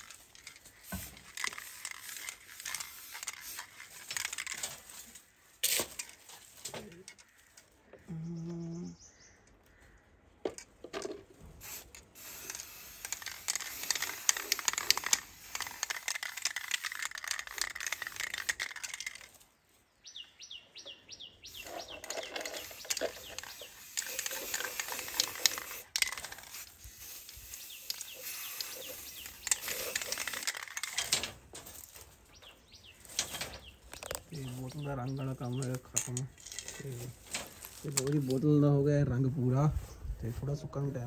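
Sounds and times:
spray-paint can hissing: 0.0s - 4.6s, 11.6s - 19.3s, 21.5s - 31.0s
high chirps: 26.7s - 30.4s.

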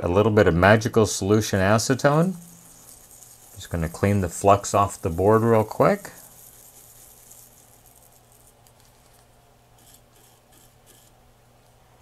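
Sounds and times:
steady low hum: 0.1s - 12.0s
brush scrubbing circuit board: 1.6s - 11.2s
faint scratches: 1.6s - 11.2s.

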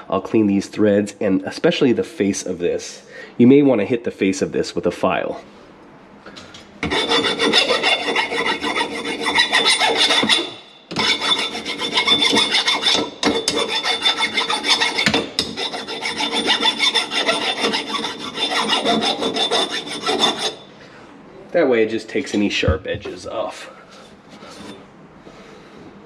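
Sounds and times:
metal file rasping on brass: 6.8s - 20.7s, 24.0s - 24.8s.

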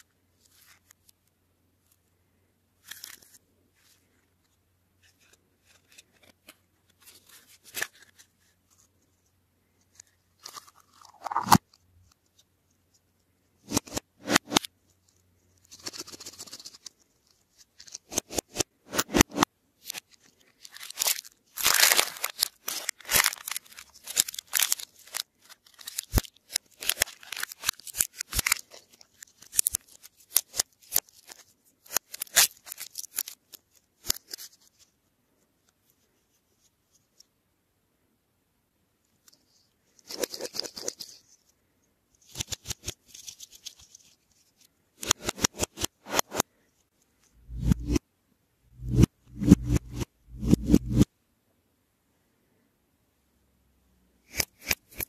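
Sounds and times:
foil wrapper crinkling: 19.8s - 34.5s.

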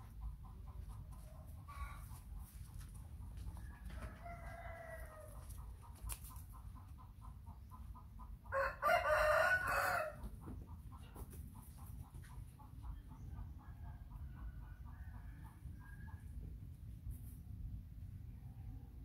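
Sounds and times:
rooster crowing: 3.8s - 5.4s, 8.5s - 10.2s.

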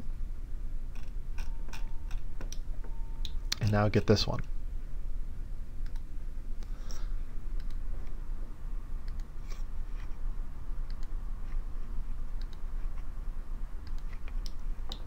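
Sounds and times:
low electrical hum: 0.0s - 15.0s
computer mouse clicks: 5.8s - 6.7s, 7.6s - 8.2s, 9.0s - 9.6s, 10.8s - 11.2s, 12.4s - 13.0s, 13.8s - 15.0s.

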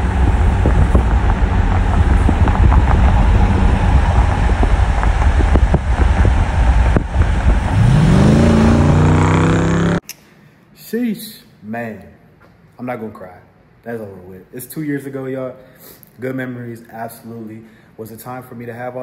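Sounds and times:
wind buffeting on microphone: 0.0s - 9.6s
engine revving: 0.0s - 10.0s
wind and road noise: 0.0s - 10.0s.

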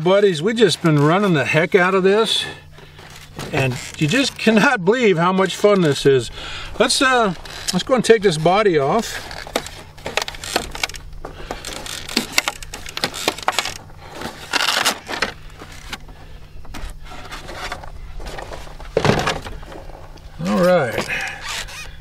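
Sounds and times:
plastic rustle: 9.0s - 16.2s.

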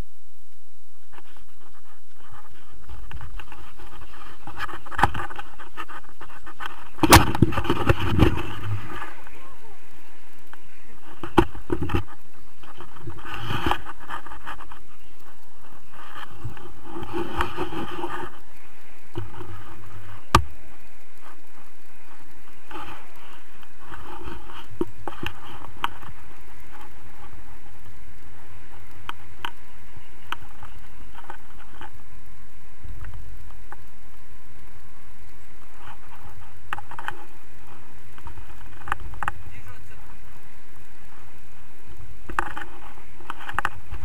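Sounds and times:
wind rumble on microphone: 0.0s - 44.0s
small scattered clicks: 0.5s - 44.0s
camera scraping and scratching: 1.1s - 9.4s, 10.4s - 20.5s, 22.2s - 27.4s, 35.6s - 39.4s, 42.2s - 44.0s.

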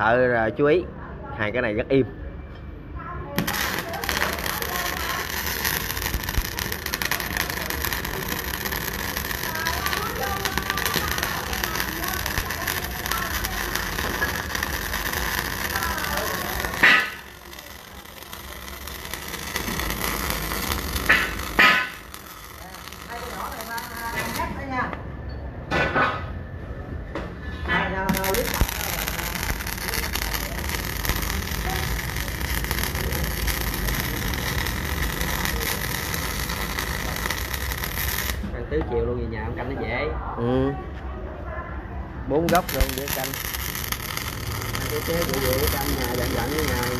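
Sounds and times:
welder arc crackling sizzle: 3.3s - 25.0s, 27.8s - 39.8s, 42.2s - 46.9s
sparks spattering: 3.4s - 24.8s, 28.1s - 38.6s, 42.3s - 46.9s.

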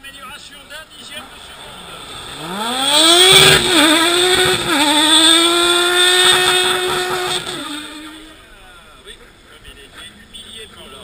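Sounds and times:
race car engine at high revs: 1.0s - 8.5s.

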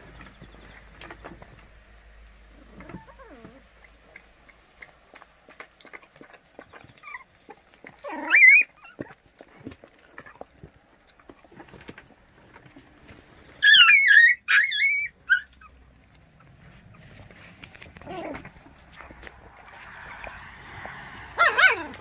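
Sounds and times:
puppies whimpering: 2.5s - 4.0s, 5.8s - 11.4s, 13.5s - 22.0s.

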